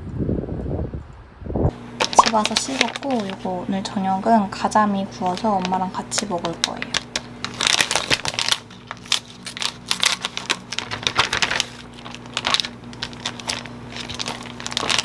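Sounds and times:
faint steady hum: 0:01.7 - 0:15.0
plastic packaging crinkling: 0:01.9 - 0:15.0
scissors snipping plastic: 0:05.2 - 0:15.0.

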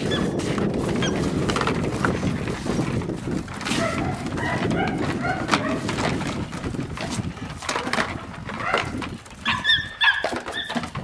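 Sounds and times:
puppy high-pitched calls: 0:00.0 - 0:00.4, 0:08.6 - 0:10.8
puppy scuffling with toy on paving: 0:00.0 - 0:11.0.

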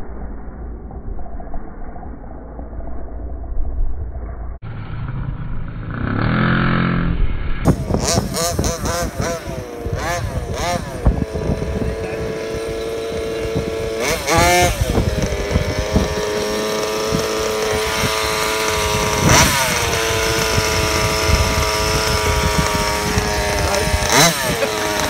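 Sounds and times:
two-stroke engine idling and revving: 0:05.0 - 0:25.0.

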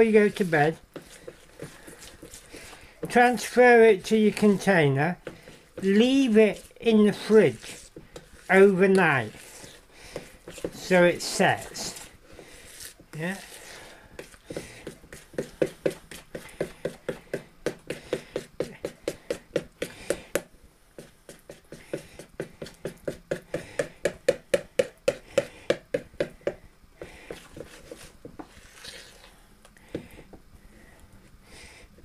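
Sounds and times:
spoon scraping bowl: 0:00.0 - 0:17.2, 0:27.3 - 0:29.4.

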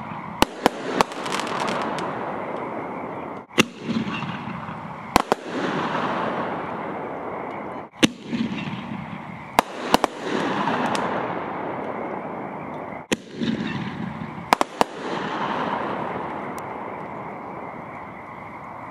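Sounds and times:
firework shells bursting: 0:03.4 - 0:12.0, 0:13.0 - 0:16.8.

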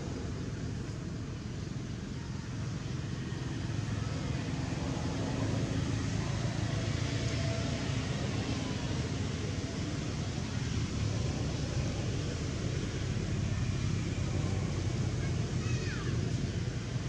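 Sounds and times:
outdoor background rumble with hiss: 0:00.0 - 0:17.0.

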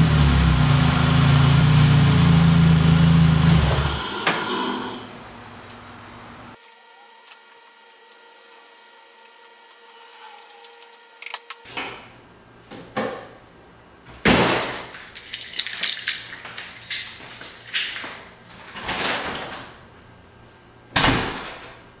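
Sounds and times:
car engine starting and revving: 0:00.0 - 0:05.1.

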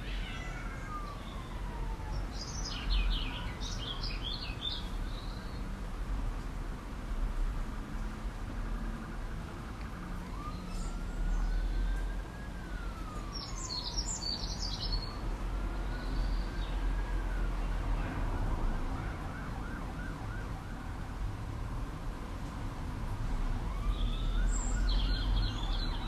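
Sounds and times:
bird chirping: 0:02.1 - 0:05.6, 0:13.3 - 0:15.2, 0:23.9 - 0:26.0.

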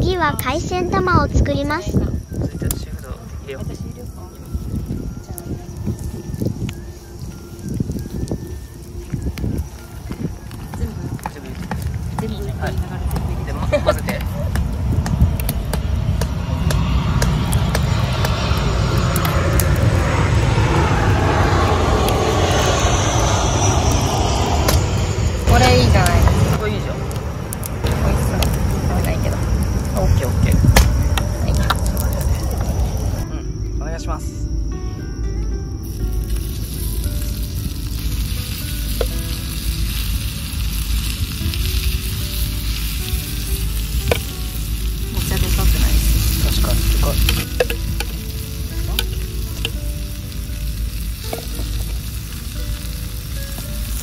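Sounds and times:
jet airliner roar overhead: 0:00.0 - 0:54.0
batter sizzling on griddle: 0:04.0 - 0:17.9, 0:35.8 - 0:54.0.

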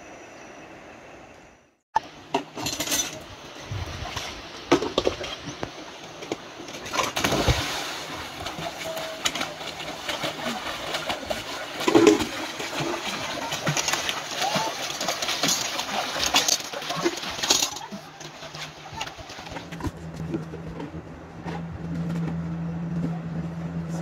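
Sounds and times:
river water flowing: 0:05.7 - 0:19.7
child splashing in water: 0:07.0 - 0:19.7.

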